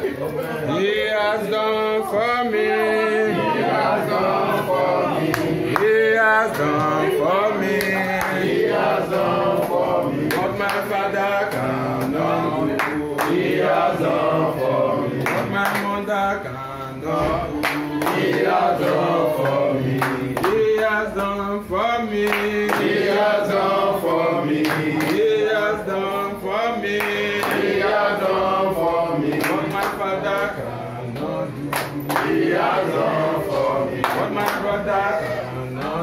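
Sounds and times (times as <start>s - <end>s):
group of people singing: 0.0s - 36.0s
hand-clapping: 4.5s - 14.0s, 15.1s - 16.1s, 17.5s - 21.4s, 22.1s - 23.6s, 24.5s - 25.8s, 26.8s - 35.1s, 35.7s - 36.0s.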